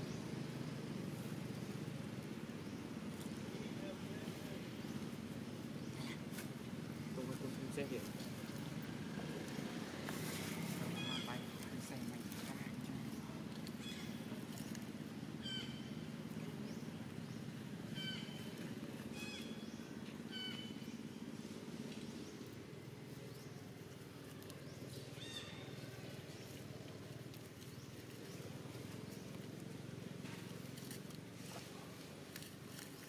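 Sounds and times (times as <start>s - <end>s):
steady low hum: 0.0s - 33.0s
macaques squeaking: 10.4s - 12.9s, 17.9s - 21.0s.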